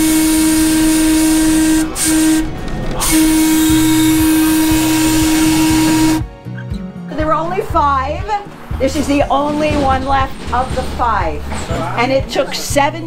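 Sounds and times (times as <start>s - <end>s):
air whistle blasts: 0.0s - 6.3s.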